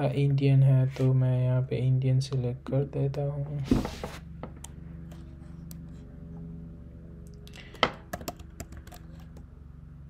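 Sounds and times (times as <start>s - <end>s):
steady low hum: 0.0s - 10.0s
keyboard keystrokes: 8.1s - 9.4s.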